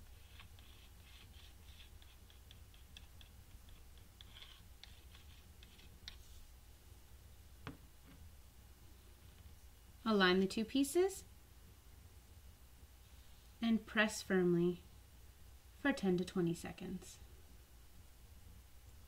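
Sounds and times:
nozzle scratching on wood: 0.0 - 6.5.

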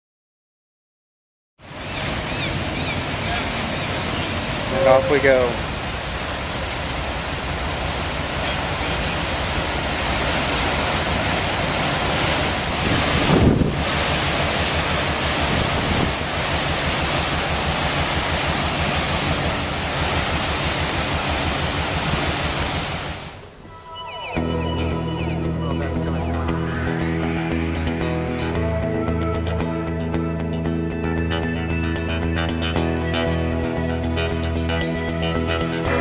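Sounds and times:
propeller wash rushing: 1.6 - 36.0
wind buffeting microphone: 9.2 - 23.7.

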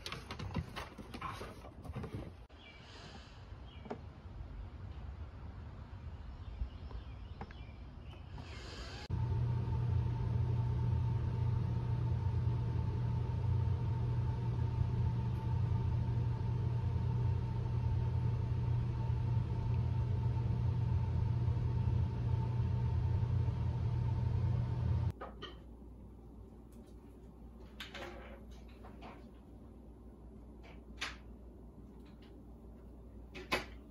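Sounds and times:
low mechanical rumble: 8.1 - 25.2.

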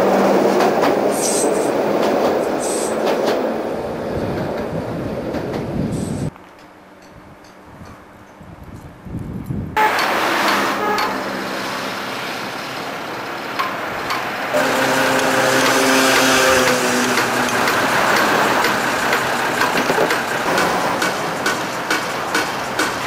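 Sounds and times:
steady vehicle noise: 8.4 - 23.0.

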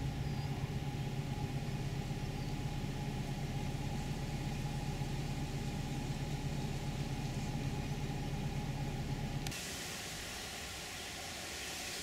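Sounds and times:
steady low hum: 0.0 - 9.6
hiss: 9.5 - 12.0.

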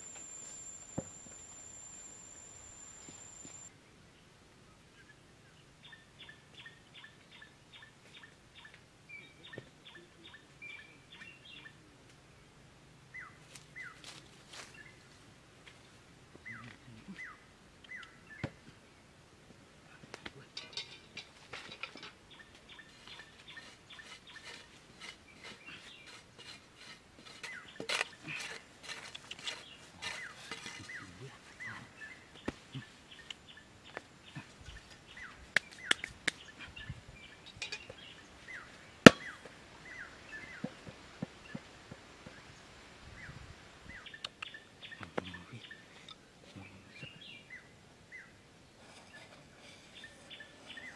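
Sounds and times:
small birds chirping: 0.0 - 3.7, 22.3 - 26.2, 29.0 - 40.7, 41.4 - 50.9
tool scraping dry soil: 22.7 - 31.2.

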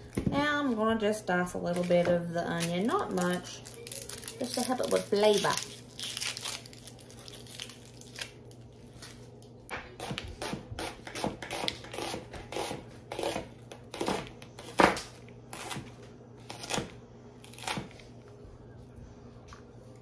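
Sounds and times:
knife chopping on cutting board: 9.8 - 15.9.

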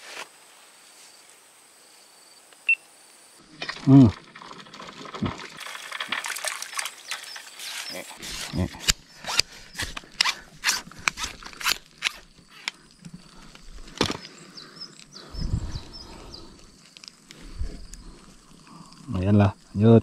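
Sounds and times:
fishing pole handling noise: 7.2 - 14.3.

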